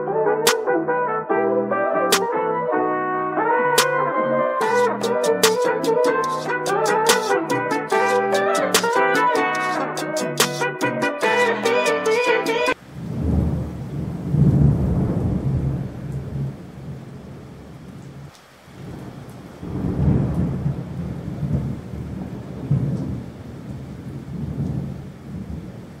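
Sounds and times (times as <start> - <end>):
rain hiss: 12.8 - 26.0
rolling thunder: 12.9 - 17.7, 18.8 - 26.0.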